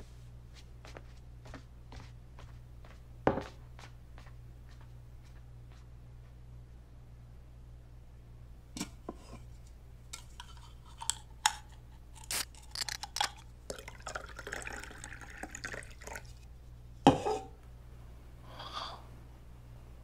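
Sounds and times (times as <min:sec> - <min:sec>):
drink pouring into glass: 0:12.3 - 0:16.5.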